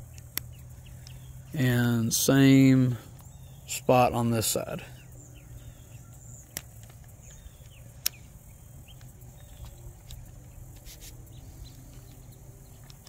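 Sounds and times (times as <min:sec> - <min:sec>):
sharp plastic clicks: 0:00.0 - 0:01.2, 0:06.1 - 0:08.3, 0:11.7 - 0:13.0
insects chirping: 0:00.0 - 0:13.0.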